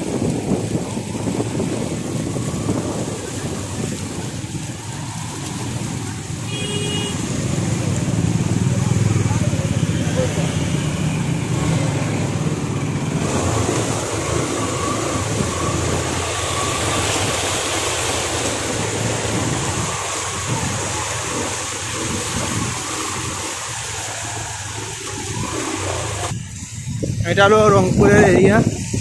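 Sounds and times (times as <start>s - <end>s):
motorbike engine running: 0.0s - 27.2s
water splashing around wheels: 0.0s - 29.0s.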